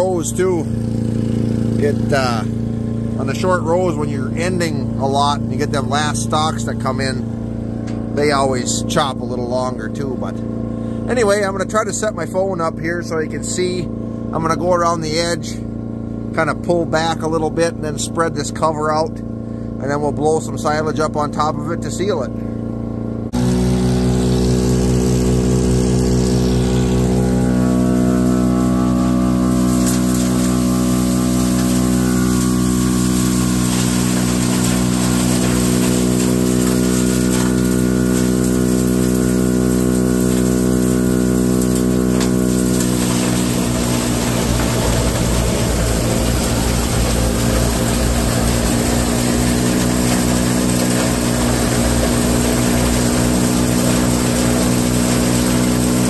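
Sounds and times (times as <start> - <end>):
silage blower droning: 0.0 - 56.0.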